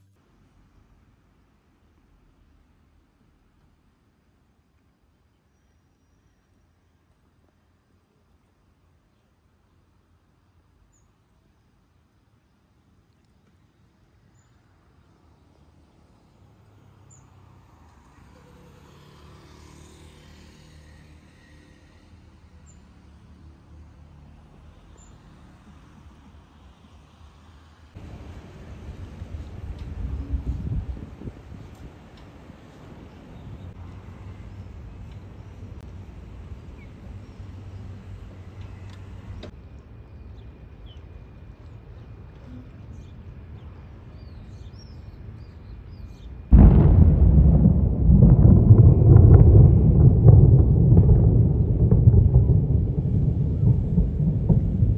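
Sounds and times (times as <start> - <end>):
low traffic rumble: 6.5 - 54.9
car passing by: 15.6 - 39.5.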